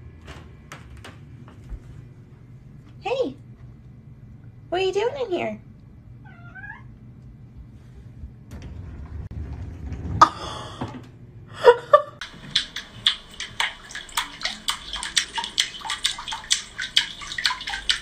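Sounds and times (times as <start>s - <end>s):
water splashing in bathtub: 12.2s - 18.0s.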